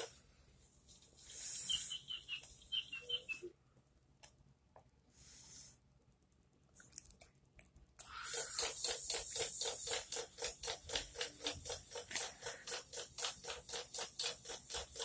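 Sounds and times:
rapid ratchet-like clicking: 0:08.2 - 0:15.0.

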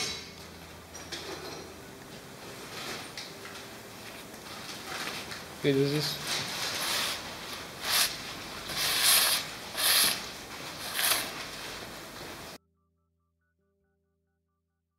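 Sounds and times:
gloved hand rubbing steel plate: 0:06.5 - 0:12.6.

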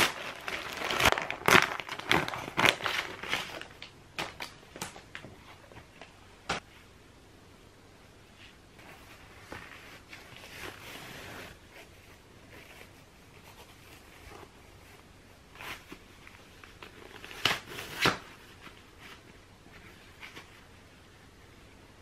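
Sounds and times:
soft fabric rustling: 0:08.2 - 0:21.7.

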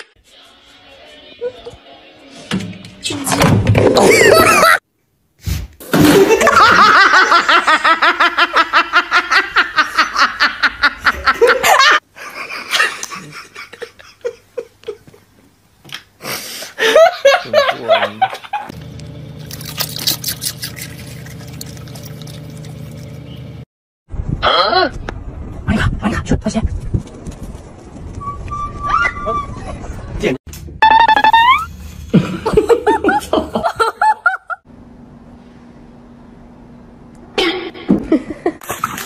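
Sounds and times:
person laughing hard: 0:04.0 - 0:04.8, 0:32.1 - 0:34.6.

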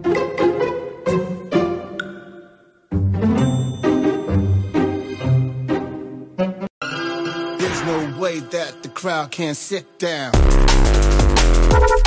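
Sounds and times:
background music with bass line: 0:10.3 - 0:12.0.

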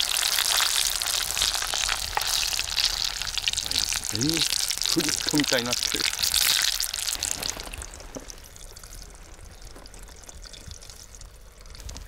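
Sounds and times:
food frying in hot oil: 0:00.0 - 0:12.0.

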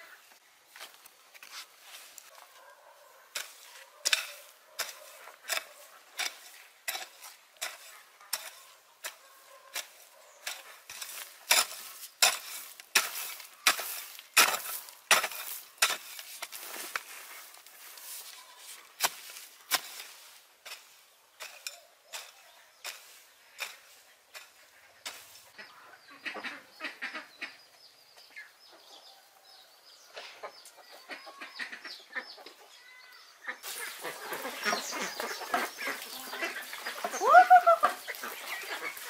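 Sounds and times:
hoe chopping into dry soil: 0:09.8 - 0:17.1, 0:19.0 - 0:25.4.

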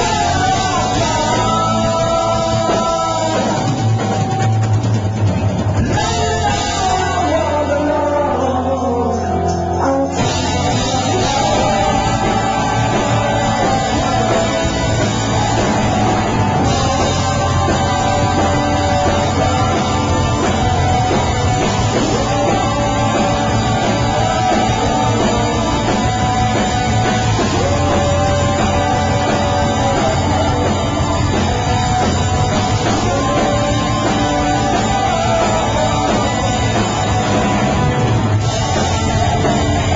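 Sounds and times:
rock band playing loud: 0:00.0 - 0:39.9
guitar line sliding downward: 0:10.1 - 0:39.9.

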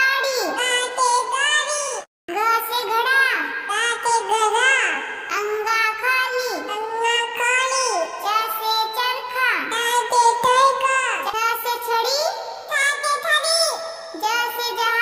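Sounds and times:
child singing: 0:00.0 - 0:15.0.

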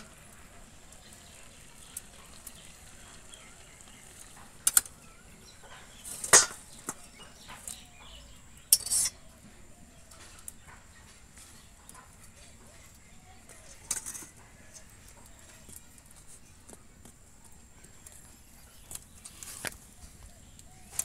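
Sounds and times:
metal spatula clanking on pan: 0:05.7 - 0:07.0, 0:08.6 - 0:09.2.

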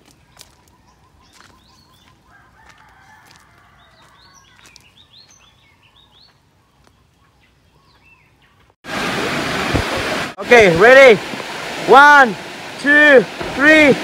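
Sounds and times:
small bird chirping: 0:00.2 - 0:02.2
rooster crowing faintly: 0:02.3 - 0:04.6.

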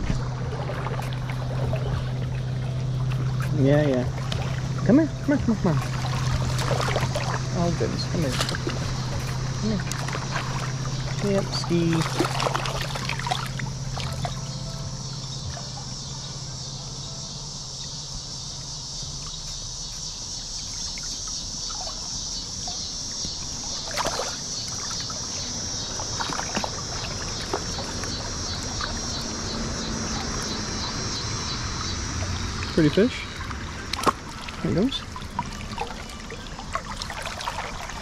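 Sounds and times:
river water rushing: 0:00.0 - 0:14.5, 0:26.0 - 0:38.0.

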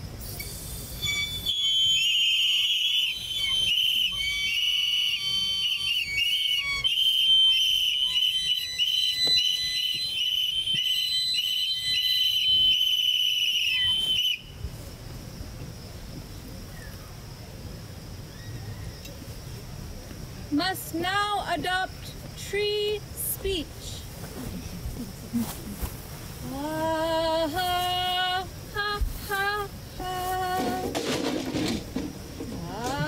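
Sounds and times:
high steady whistle: 0:00.2 - 0:14.7
short whistle toots: 0:00.3 - 0:14.6.

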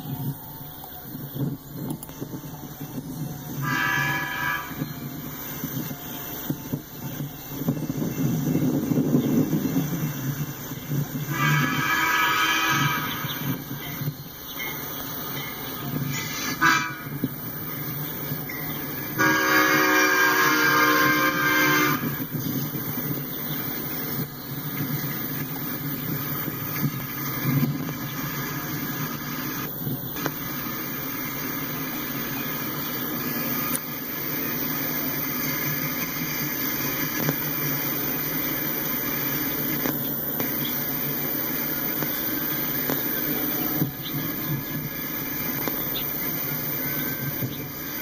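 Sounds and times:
freight cars rumbling on rails: 0:00.0 - 0:48.0
train car clanks: 0:00.0 - 0:48.0
train horn blast: 0:03.5 - 0:06.8, 0:11.2 - 0:13.8, 0:16.0 - 0:17.5, 0:19.0 - 0:22.4.

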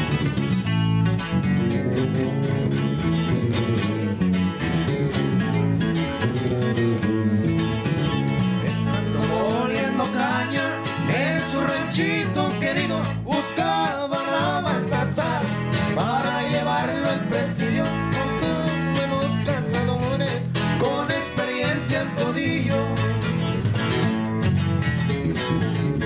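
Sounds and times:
acoustic guitars strumming: 0:00.0 - 0:26.0
electric bass: 0:00.0 - 0:26.0
man singing: 0:08.6 - 0:23.5.

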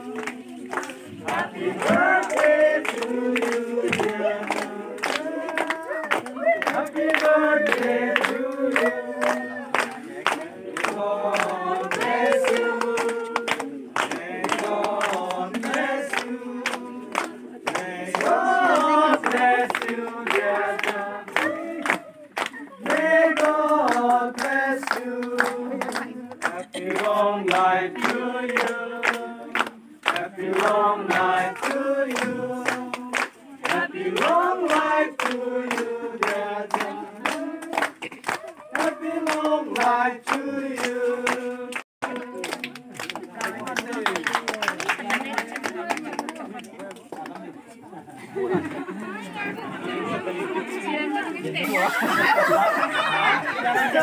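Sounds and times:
group singing a birthday song: 0:00.0 - 0:45.9, 0:48.3 - 0:54.0
hand clapping in time: 0:00.1 - 0:47.5.

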